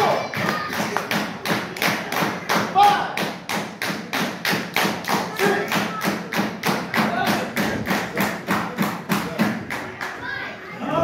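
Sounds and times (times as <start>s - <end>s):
rapid rhythmic thumping: 0.3s - 9.9s.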